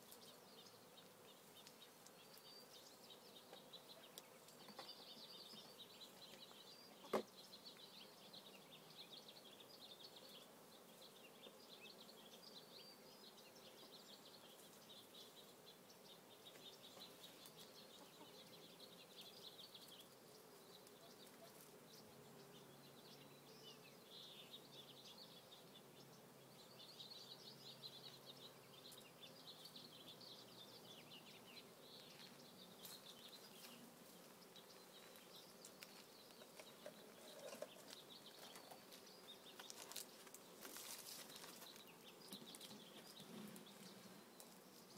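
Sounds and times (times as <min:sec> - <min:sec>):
honeybees buzzing: 0:00.0 - 0:44.9
small birds chirping: 0:00.0 - 0:44.9.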